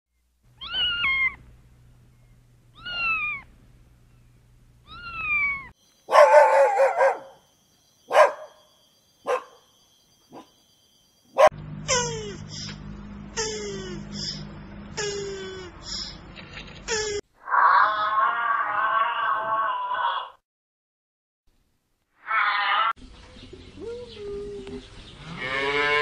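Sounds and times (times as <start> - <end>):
kitten meowing: 0.6 - 1.4, 2.7 - 3.5, 4.8 - 5.7
dog barking: 6.1 - 7.4, 8.1 - 8.6, 9.2 - 9.6, 10.3 - 10.6, 11.4 - 11.6.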